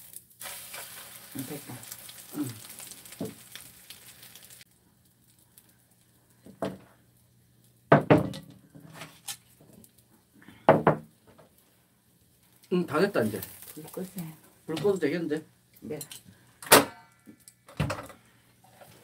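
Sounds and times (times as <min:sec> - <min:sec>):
pancake sizzling in oil: 0:00.0 - 0:08.0, 0:08.6 - 0:15.2
dishes knocking on table: 0:07.9 - 0:08.5, 0:10.7 - 0:11.0.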